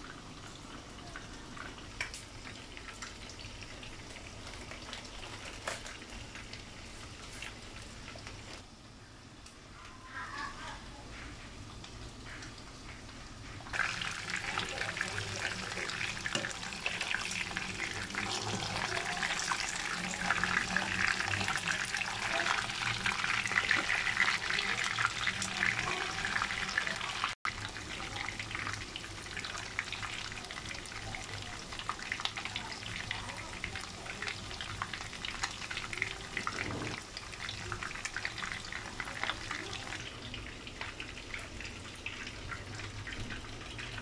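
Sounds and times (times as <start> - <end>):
pork frying in bubbling oil: 0.0 - 44.0.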